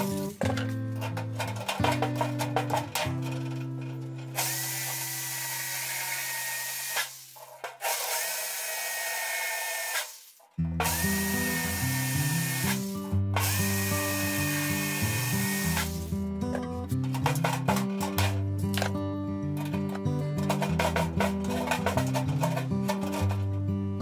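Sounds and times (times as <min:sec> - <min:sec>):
power drill boring through metal: 0:04.4 - 0:16.1.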